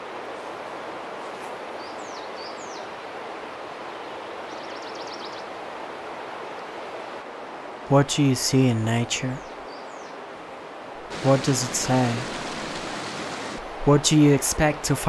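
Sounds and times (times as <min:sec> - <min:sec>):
steady rushing noise: 0:11.0 - 0:13.9.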